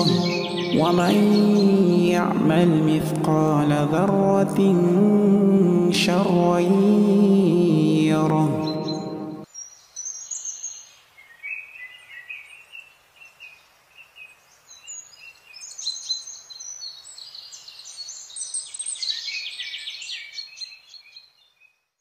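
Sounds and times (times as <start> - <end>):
birds chirping and singing: 0.0 - 5.2, 7.9 - 12.9, 14.6 - 21.4.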